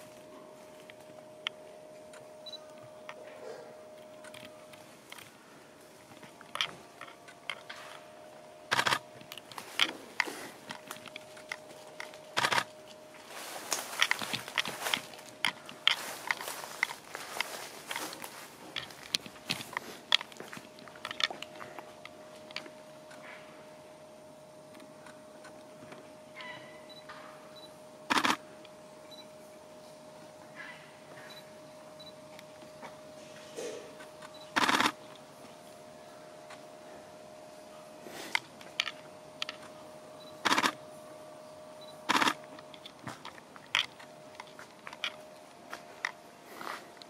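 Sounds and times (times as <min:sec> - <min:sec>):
faint steady hum: 0:00.0 - 0:47.0
small crunching clicks: 0:03.9 - 0:05.4, 0:06.0 - 0:08.1, 0:08.7 - 0:23.4, 0:28.1 - 0:29.2, 0:32.0 - 0:35.6, 0:38.1 - 0:40.9, 0:41.8 - 0:47.0
camera shutter firing: 0:08.7 - 0:09.0, 0:12.4 - 0:12.7, 0:28.1 - 0:28.4, 0:34.6 - 0:35.0.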